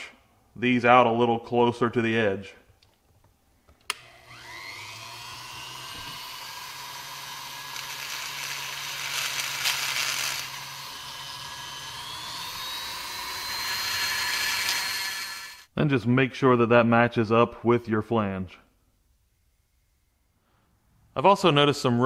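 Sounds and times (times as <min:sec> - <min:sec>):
rotary tool whining and grinding: 0:03.9 - 0:15.7.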